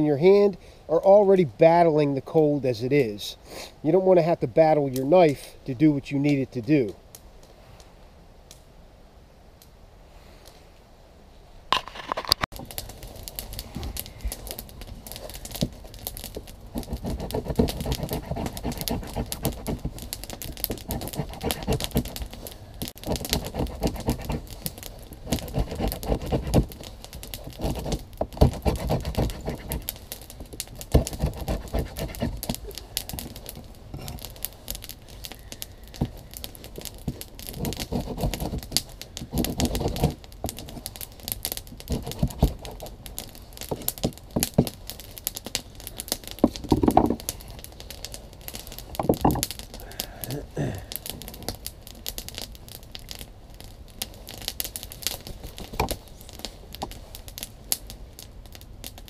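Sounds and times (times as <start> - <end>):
knife scraping wood: 15.1 - 34.9, 35.9 - 40.8, 41.7 - 44.8, 46.4 - 47.5, 48.9 - 49.5.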